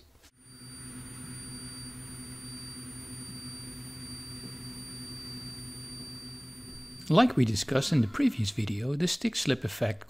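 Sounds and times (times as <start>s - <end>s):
high-pitched tape squeal: 0.4s - 7.2s
tape transport hum: 0.4s - 8.8s.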